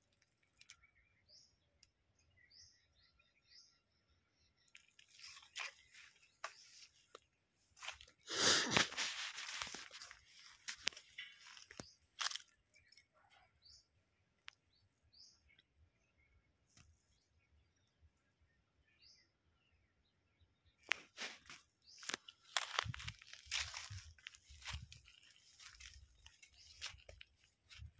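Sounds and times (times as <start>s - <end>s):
small birds chirping: 0.0s - 27.9s
dry crunching and rustling: 4.7s - 13.0s, 20.8s - 27.9s.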